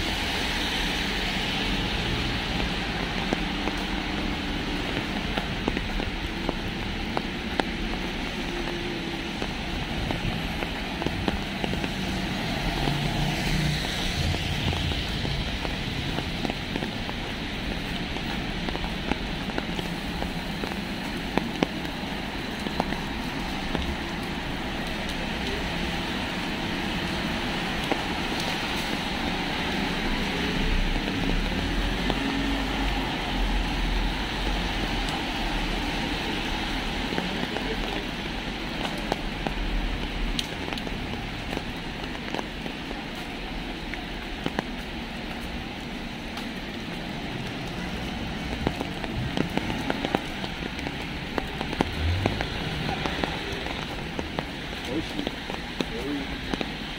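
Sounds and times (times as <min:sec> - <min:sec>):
low traffic rumble: 0:00.0 - 0:56.9
rain falling on street: 0:00.0 - 0:56.9.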